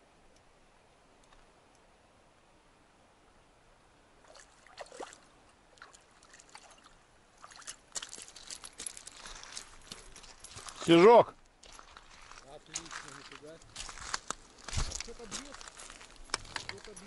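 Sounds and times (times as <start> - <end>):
fish splashing in shallows: 4.2 - 9.7
shingle crunching: 11.6 - 17.0.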